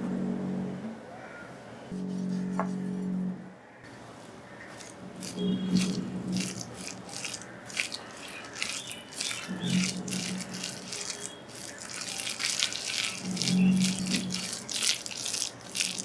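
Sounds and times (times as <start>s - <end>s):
low hum: 0.0s - 1.2s, 1.8s - 4.0s
hands squishing wet paste: 4.5s - 16.0s.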